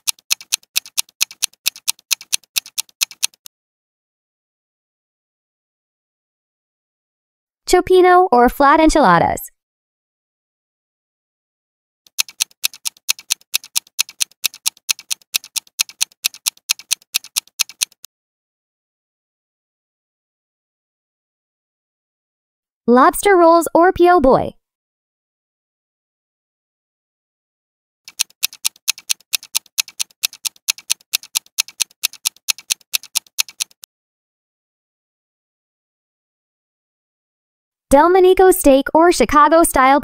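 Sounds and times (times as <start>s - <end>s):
clock-like ticking: 0.0s - 3.5s, 12.1s - 18.1s, 28.1s - 33.9s.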